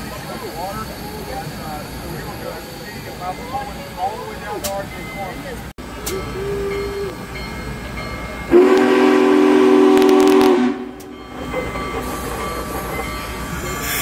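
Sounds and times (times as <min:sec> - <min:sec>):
steam hiss: 0:00.0 - 0:07.4, 0:10.0 - 0:14.0
steam whistle chord: 0:08.5 - 0:11.2.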